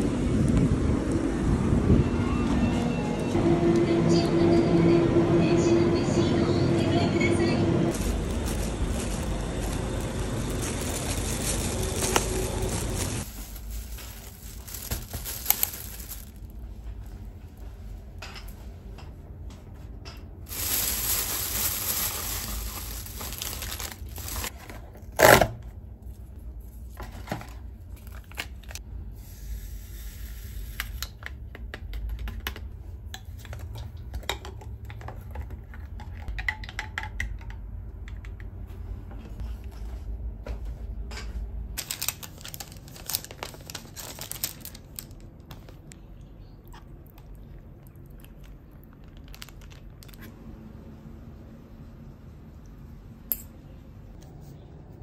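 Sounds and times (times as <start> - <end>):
plastic container crinkling: 7.9 - 16.6, 20.5 - 24.6, 41.8 - 45.4, 48.4 - 50.3
plastic bag rustling: 7.9 - 17.6, 20.4 - 24.6, 41.8 - 45.4, 49.0 - 50.2.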